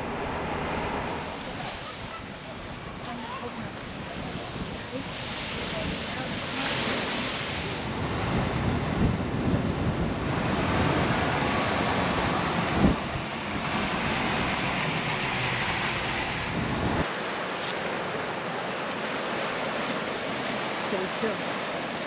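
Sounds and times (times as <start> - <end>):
wind buffeting microphone: 0.0 - 17.1
ocean surf: 0.0 - 22.0.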